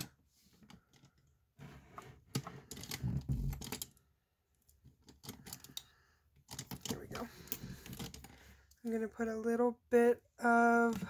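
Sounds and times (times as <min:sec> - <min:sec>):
plastic items clicking and rattling: 0:02.2 - 0:04.1, 0:04.7 - 0:08.5, 0:10.7 - 0:11.0.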